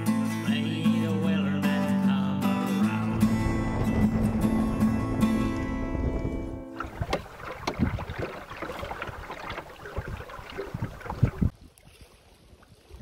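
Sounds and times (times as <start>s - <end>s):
guitar song: 0.0s - 6.8s
wind on microphone: 2.9s - 11.6s
water splashing against hull: 2.9s - 13.0s.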